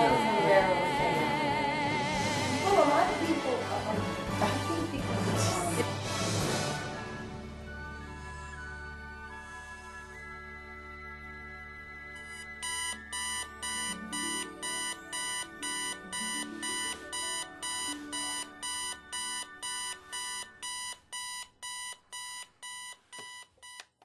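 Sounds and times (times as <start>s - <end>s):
alarm clock beeping: 10.2s - 23.8s.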